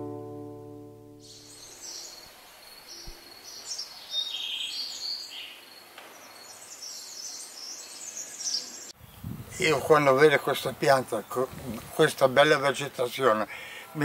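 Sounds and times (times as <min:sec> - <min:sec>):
insect drone: 0:01.2 - 0:06.8
birds chirping: 0:01.2 - 0:14.0.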